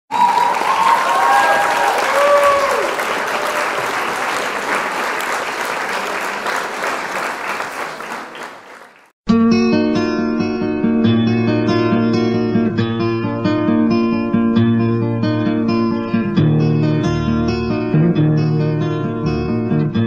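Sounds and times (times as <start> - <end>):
crowd applauding and cheering: 0.1 - 9.2.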